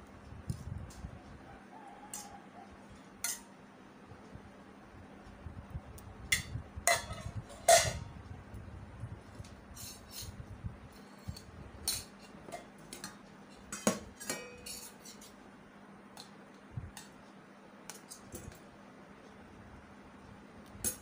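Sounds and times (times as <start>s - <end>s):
spoon and plates clinking: 6.4s - 8.0s, 11.8s - 15.3s.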